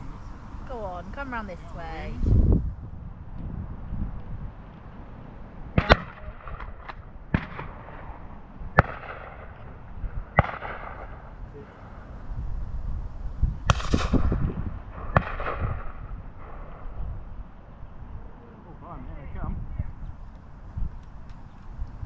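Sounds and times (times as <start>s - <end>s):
wind rumble on microphone: 0.0s - 22.0s
shotgun shots with echo: 5.8s - 8.0s, 8.8s - 12.0s, 13.7s - 14.4s, 15.0s - 16.8s.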